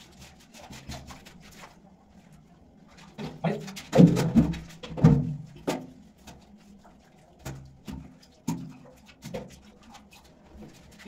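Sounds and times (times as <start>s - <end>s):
knocks in concrete tank: 3.2s - 5.9s.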